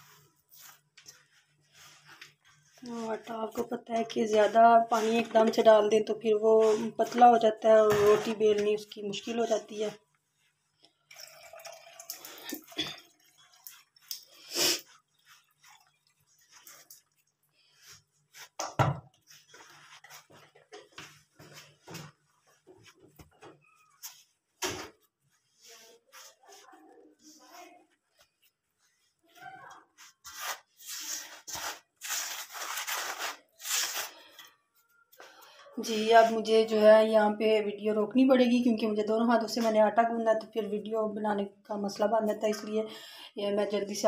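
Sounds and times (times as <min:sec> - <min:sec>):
hand mixing dough in steel bowl: 0:00.0 - 0:11.1, 0:13.0 - 0:18.6, 0:19.2 - 0:35.1.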